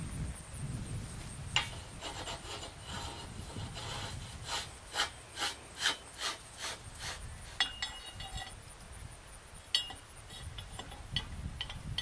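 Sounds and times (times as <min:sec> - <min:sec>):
metal cap grating on pipe: 0:01.6 - 0:08.6, 0:09.8 - 0:12.0
metallic clink: 0:07.6 - 0:08.6, 0:09.7 - 0:12.0.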